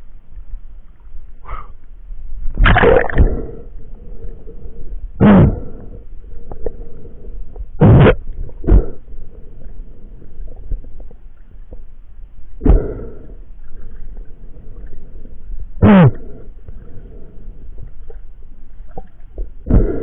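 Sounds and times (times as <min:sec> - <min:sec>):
faint crackling and ticks: 0:09.3 - 0:12.2.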